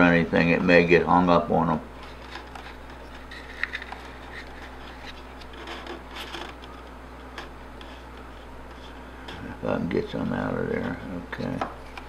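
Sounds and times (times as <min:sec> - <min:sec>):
steady low hum: 0:00.0 - 0:12.0
faint handling clicks and rubbing: 0:02.0 - 0:09.5.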